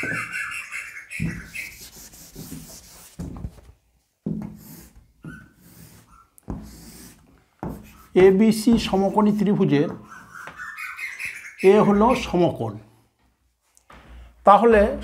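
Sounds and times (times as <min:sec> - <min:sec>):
duster rubbing blackboard: 0:01.1 - 0:03.7, 0:04.4 - 0:10.5
chalk scraping on blackboard: 0:01.2 - 0:03.4, 0:04.5 - 0:09.2
knocks against board: 0:07.6 - 0:09.2.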